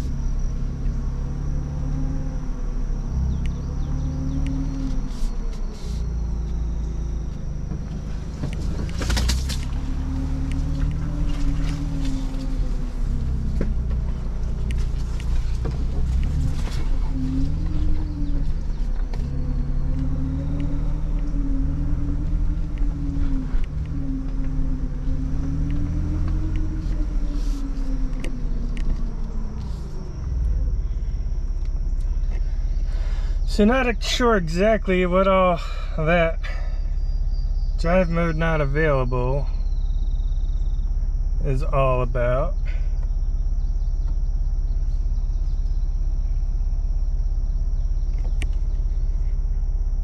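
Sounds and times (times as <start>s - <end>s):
car engine running at low speed: 0.0s - 50.0s
vehicle knocks and rattles: 7.6s - 20.1s.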